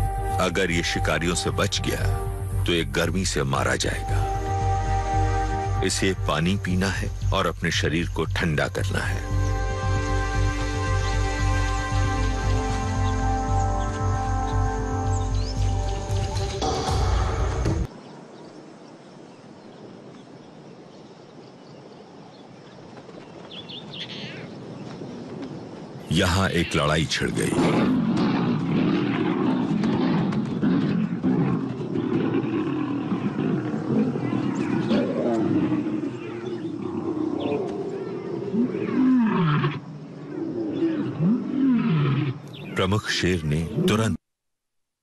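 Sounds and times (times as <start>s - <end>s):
even outdoor hiss: 0.0s - 44.2s
lions snarling and growling: 27.3s - 42.7s.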